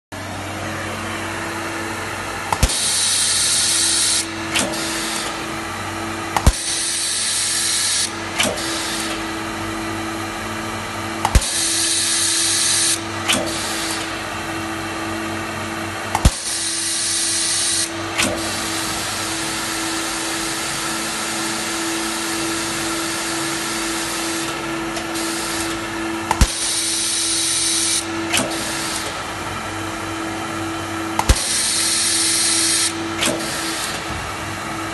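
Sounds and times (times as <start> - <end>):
machine hum: 0.1 - 34.9
stud welder crack: 2.5 - 5.4, 11.2 - 14.1, 25.0 - 29.2, 31.2 - 31.9.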